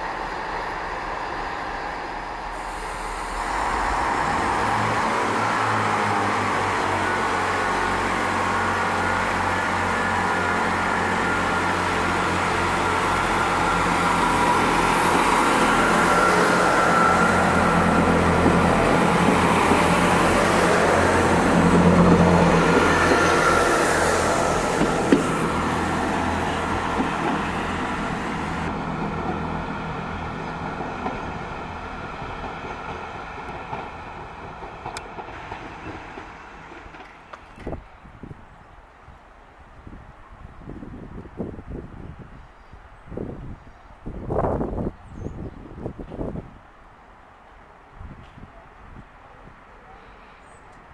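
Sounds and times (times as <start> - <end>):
distant train hum: 0.0 - 40.4
diesel train passing: 0.0 - 44.9.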